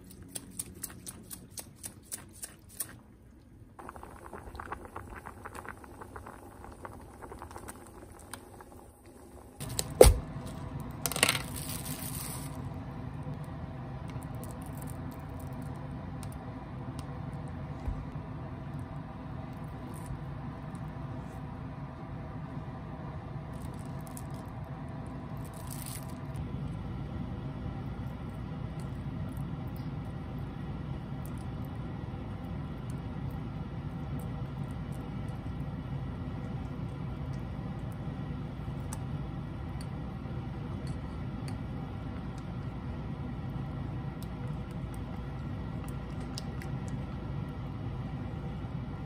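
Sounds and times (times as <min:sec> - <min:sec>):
low hum: 0:03.3 - 0:49.0
plastic wrap crinkling: 0:09.6 - 0:12.6, 0:25.4 - 0:26.4.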